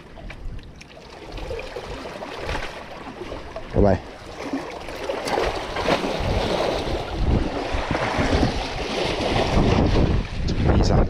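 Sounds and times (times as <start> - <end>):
sea water: 0.0 - 11.0
wind gusting on microphone: 5.2 - 11.0
wind rushing: 5.5 - 11.0.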